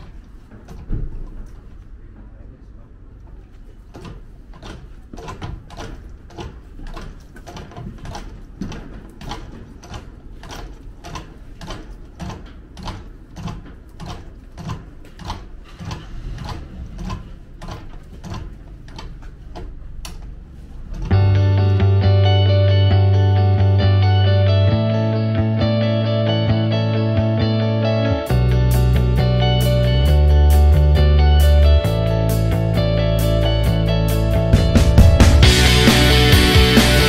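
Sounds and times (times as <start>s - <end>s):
low rumble of rolling dollies: 0.0s - 21.9s
ratchet winch clicking: 3.9s - 21.2s
guitar music: 21.1s - 37.0s.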